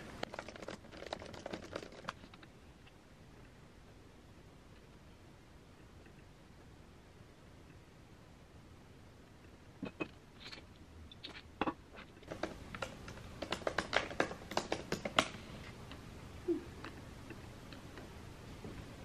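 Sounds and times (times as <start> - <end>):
laptop keyboard typing: 0.0 - 2.5, 12.2 - 15.4.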